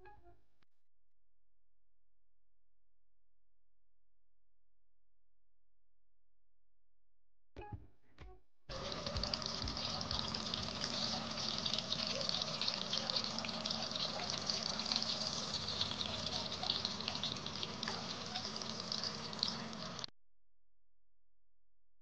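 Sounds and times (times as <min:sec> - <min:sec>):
food sizzling in hot oil: 0:08.7 - 0:20.1.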